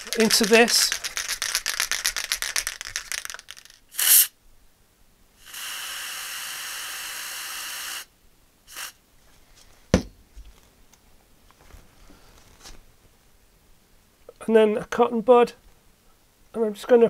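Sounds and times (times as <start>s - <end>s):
aerosol can spraying: 0.0s - 4.3s, 5.4s - 8.1s, 8.7s - 9.0s
sharp knock: 10.0s - 10.2s.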